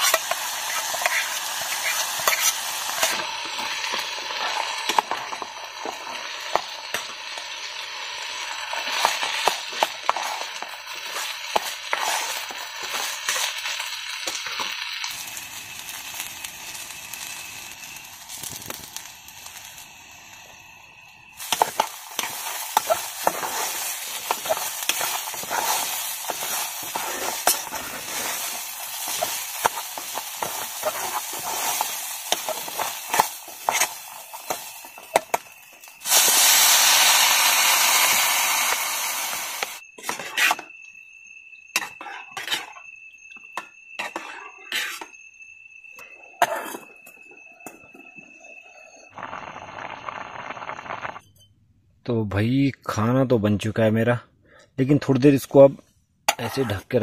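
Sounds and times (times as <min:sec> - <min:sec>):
loud hiss: 0:00.0 - 0:39.8
steady sizzle: 0:00.0 - 0:51.4.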